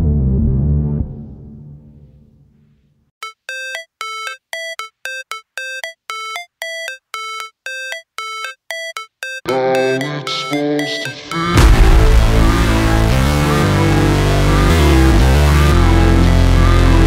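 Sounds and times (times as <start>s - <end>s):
repeated short high notes: 3.2s - 11.9s
low bass notes: 11.6s - 17.0s.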